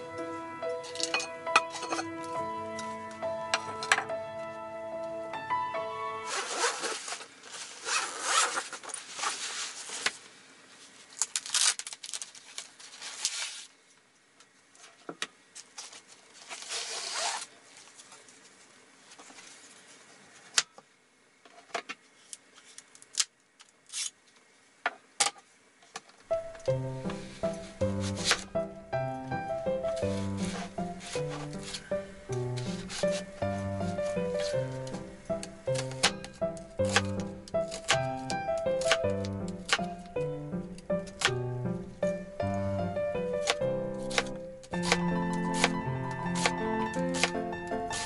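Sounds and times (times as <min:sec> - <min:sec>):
background music: 0:00.0 - 0:06.8, 0:26.3 - 0:48.0
zipper of fabric case opening: 0:06.2 - 0:09.6, 0:16.6 - 0:17.5.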